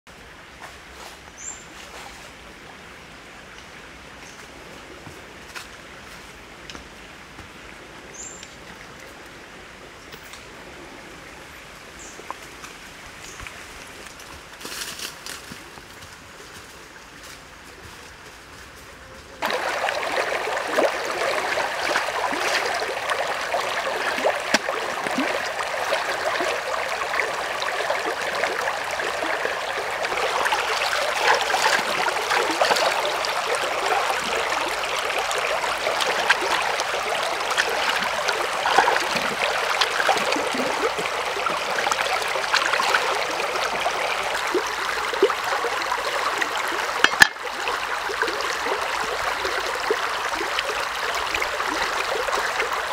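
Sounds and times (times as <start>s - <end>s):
water splashing from hands washing: 19.4s - 47.4s
stream running over rocks: 19.4s - 52.9s.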